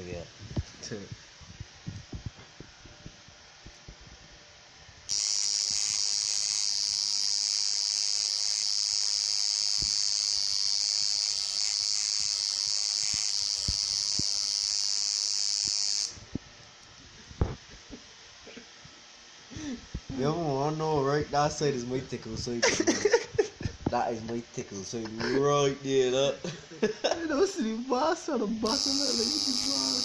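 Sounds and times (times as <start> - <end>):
tattoo machine buzzing: 5.0 - 16.2, 28.6 - 30.0.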